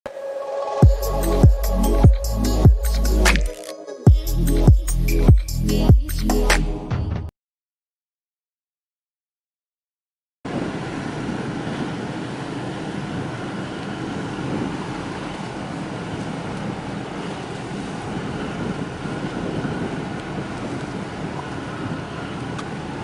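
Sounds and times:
wind on microphone: 10.5s - 23.0s
sea water washing at wall: 12.7s - 23.0s.

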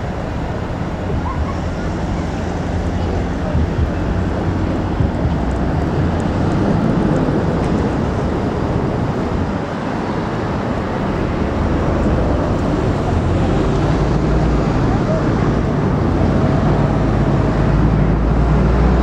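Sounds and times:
diesel train low rumble: 0.0s - 19.0s.

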